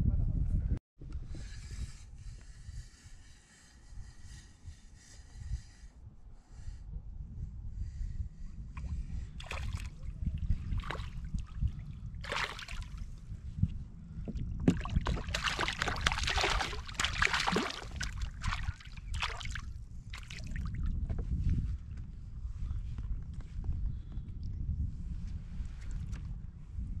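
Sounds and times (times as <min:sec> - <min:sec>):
steady low rumble: 0:00.0 - 0:27.0
water sloshing against hull: 0:08.8 - 0:22.1
fish splashing at surface: 0:12.2 - 0:13.0, 0:14.7 - 0:19.6.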